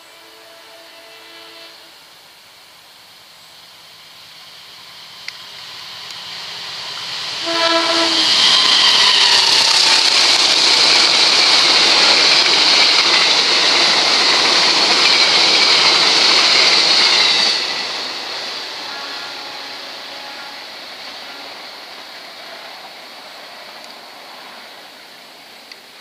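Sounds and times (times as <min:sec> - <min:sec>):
train horn: 0:00.0 - 0:02.1, 0:07.4 - 0:10.1, 0:18.6 - 0:21.9
train passing at speed: 0:00.0 - 0:26.0.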